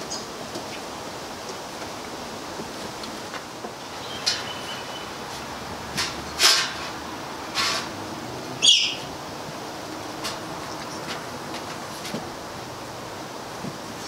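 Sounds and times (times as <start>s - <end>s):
steady hiss: 0.0s - 14.0s
puppies moving about metal bowl: 4.0s - 4.9s, 5.9s - 8.0s.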